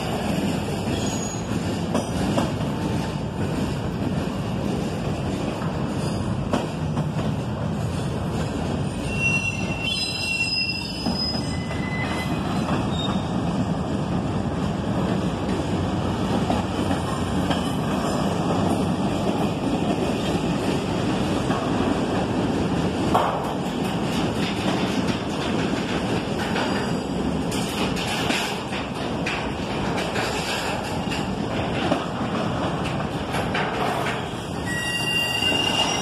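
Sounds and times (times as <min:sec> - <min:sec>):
train wheels rumbling on rail: 0:00.0 - 0:36.0
high wheel squeals: 0:09.0 - 0:13.3, 0:34.6 - 0:36.0.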